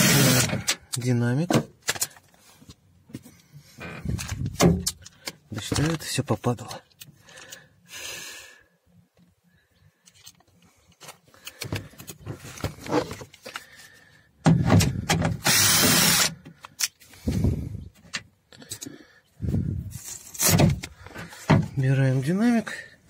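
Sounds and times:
cordless drill running: 0.0 - 0.6, 15.4 - 16.4.

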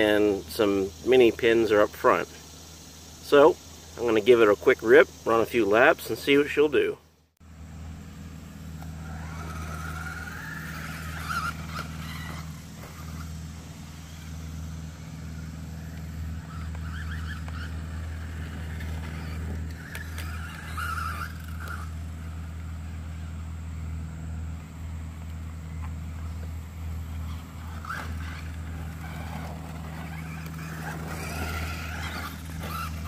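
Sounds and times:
electric motor whine: 7.4 - 33.0
steady low rumble: 7.4 - 33.0.

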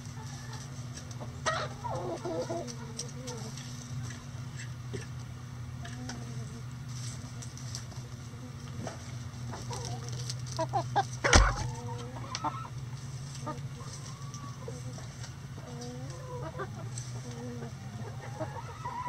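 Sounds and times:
hens clucking: 0.0 - 19.0
steady low hum: 0.0 - 19.0
loud thump: 11.3 - 11.7.

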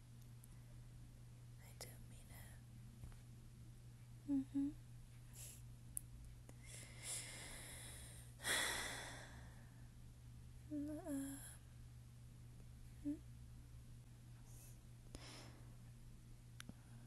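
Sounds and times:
woman humming: 4.2 - 4.8, 10.7 - 11.6, 13.0 - 13.2
woman breathing softly: 6.6 - 9.9, 14.4 - 15.8.

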